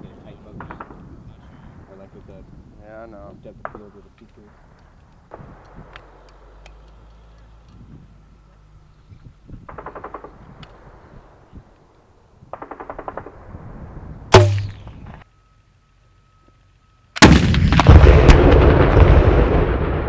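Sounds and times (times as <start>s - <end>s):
launcher blast with rumble: 12.6s - 15.0s, 17.2s - 20.0s
sharp bang: 14.3s - 15.1s.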